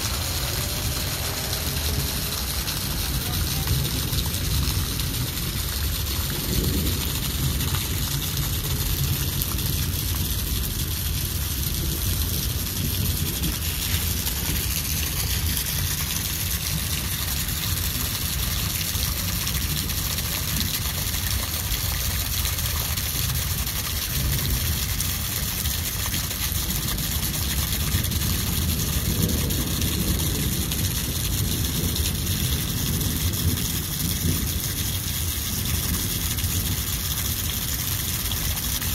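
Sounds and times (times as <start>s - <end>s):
low rumble: 0.0s - 9.2s
rain falling on water: 0.0s - 38.9s.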